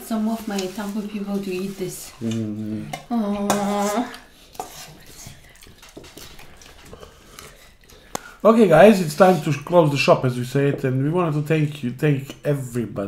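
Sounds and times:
metal spoon scraping a pan: 0:00.2 - 0:07.1
short vocal sounds: 0:02.2 - 0:04.1.

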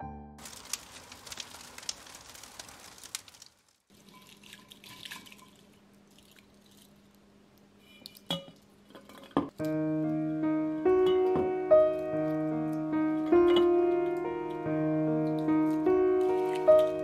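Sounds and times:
pine cones rustling in a bowl: 0:00.4 - 0:05.7, 0:15.7 - 0:17.0.

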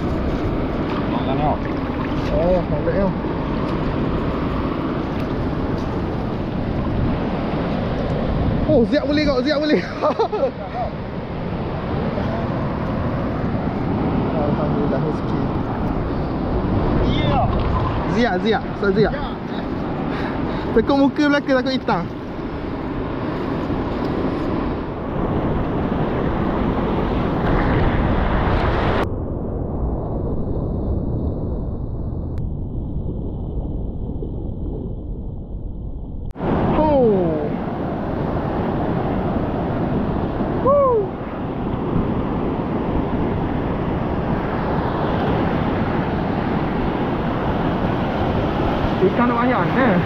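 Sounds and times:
surf rushing on shore: 0:00.0 - 0:29.1, 0:36.4 - 0:50.0
wind buffeting microphone: 0:00.0 - 0:50.0.

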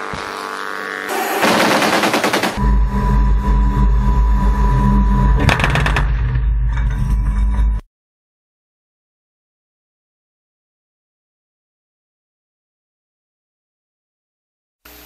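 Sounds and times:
autocannons firing: 0:01.1 - 0:02.6
heavy low rumble: 0:02.6 - 0:07.8.

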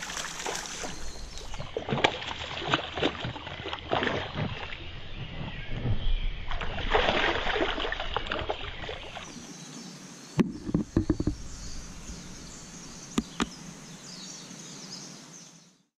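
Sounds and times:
water splashing and churning: 0:00.0 - 0:09.5
sharp knocks: 0:10.4 - 0:11.5.

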